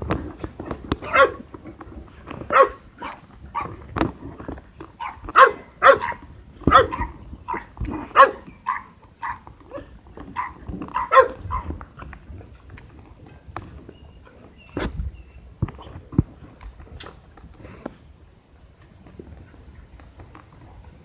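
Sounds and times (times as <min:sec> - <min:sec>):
dogs barking: 0:01.0 - 0:01.5, 0:02.5 - 0:03.8, 0:05.0 - 0:11.8.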